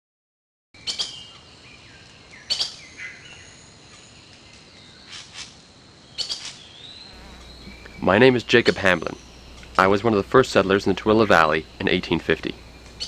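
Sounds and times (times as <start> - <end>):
sharp bird chirps: 0.8 - 13.0
steady background hiss: 0.8 - 13.0
soft whistled bird notes: 6.1 - 13.0.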